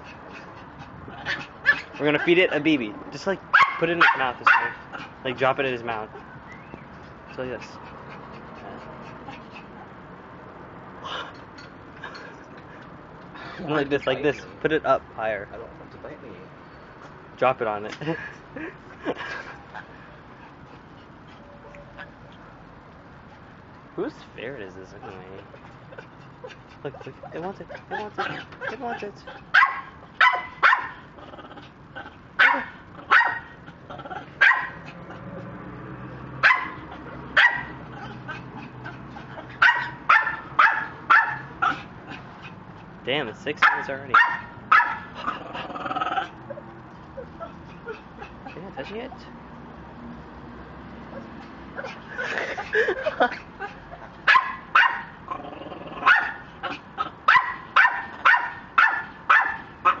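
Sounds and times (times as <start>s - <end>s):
dog barking: 3.5s - 4.9s, 29.4s - 31.0s, 32.4s - 33.6s, 34.4s - 34.8s, 36.4s - 37.8s, 39.6s - 41.8s, 43.6s - 45.2s, 54.2s - 55.2s, 56.0s - 56.4s, 57.2s - 60.0s.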